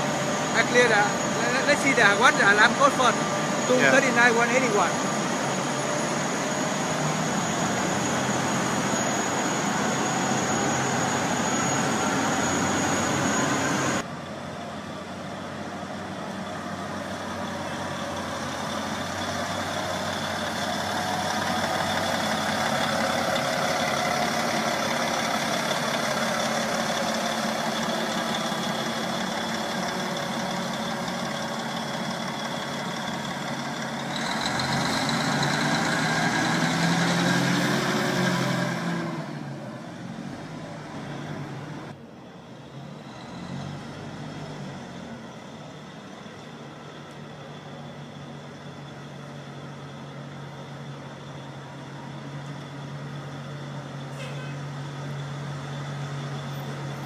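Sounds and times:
aircraft tug engine running: 0.0s - 42.0s.

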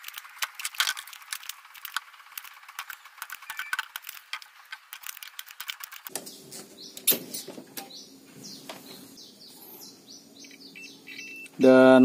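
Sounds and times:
solder crackling: 0.0s - 7.9s
bird chirps: 3.4s - 3.9s, 6.2s - 11.6s.

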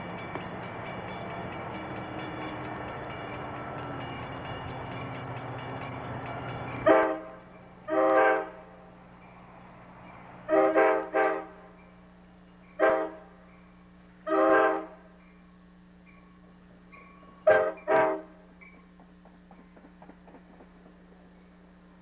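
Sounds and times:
train air horn blasts: 6.8s - 8.8s, 10.5s - 11.7s, 12.8s - 13.4s, 14.2s - 15.2s, 17.4s - 18.5s.

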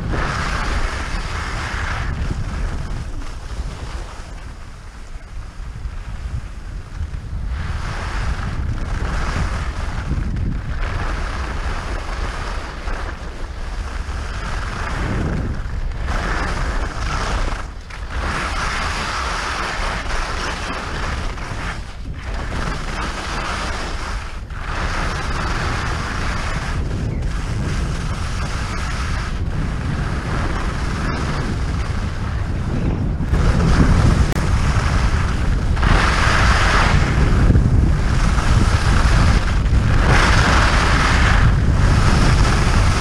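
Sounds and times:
wind buffeting microphone: 0.0s - 43.0s
skis hissing over snow: 0.1s - 5.5s, 7.6s - 15.3s, 16.0s - 43.0s.

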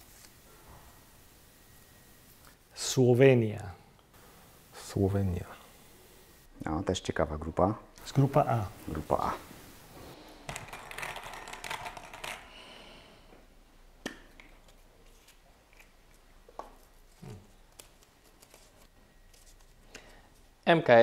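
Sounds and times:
paper rustling: 16.8s - 20.4s.

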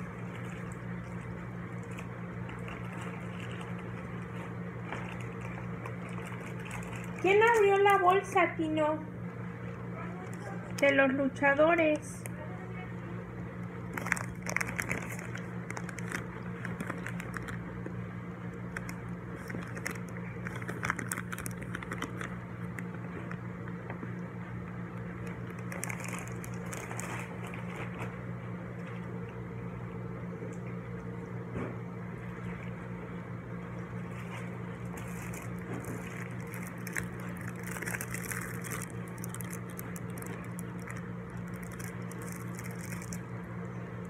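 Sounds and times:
low room hum: 0.0s - 44.0s
plastic packaging crinkling: 4.8s - 8.4s, 13.7s - 18.0s, 18.6s - 23.4s, 25.1s - 28.1s, 34.2s - 43.4s.

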